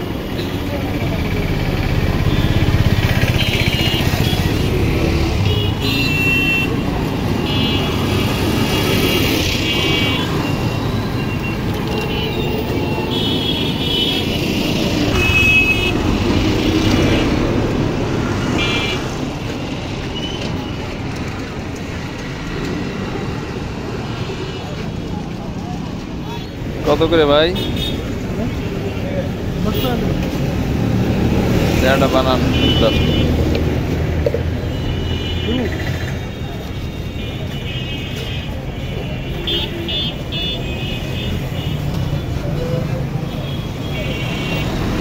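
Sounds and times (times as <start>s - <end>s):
street traffic: 0.0s - 45.0s.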